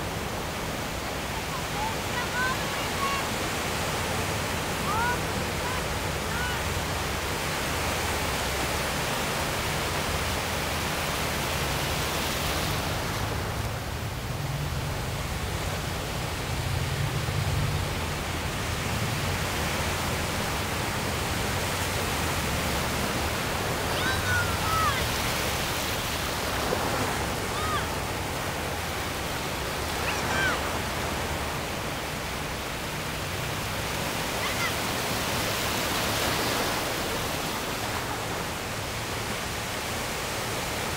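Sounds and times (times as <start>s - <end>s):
ocean surf breaking: 0.0s - 40.9s
faint high cries: 27.5s - 28.0s, 30.0s - 30.8s, 34.3s - 34.9s.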